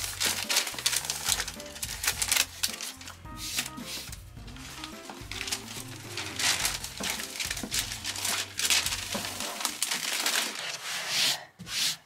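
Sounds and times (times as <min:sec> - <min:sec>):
soft background music: 0:00.0 - 0:10.8
vinyl wallpaper crinkling and rustling: 0:00.0 - 0:11.5.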